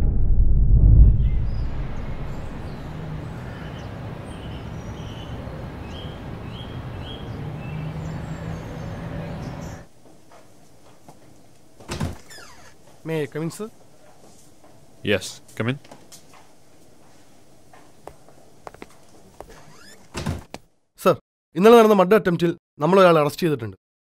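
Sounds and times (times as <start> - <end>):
low hum: 0.0 - 7.6
birds chirping: 1.2 - 9.9
traffic noise: 1.9 - 10.2.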